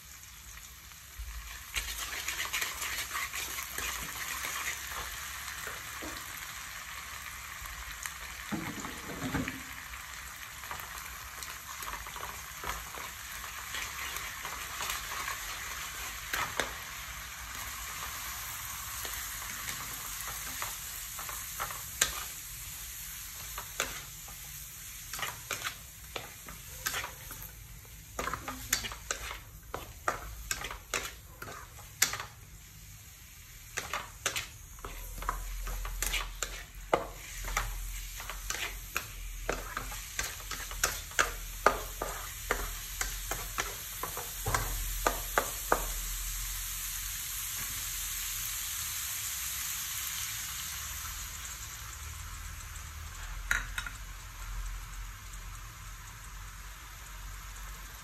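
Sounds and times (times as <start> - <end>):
garlic sizzling in oil: 0.0 - 58.0
wooden spatula scraping a pan: 1.7 - 5.1, 19.5 - 22.4, 23.4 - 32.4, 33.7 - 45.9.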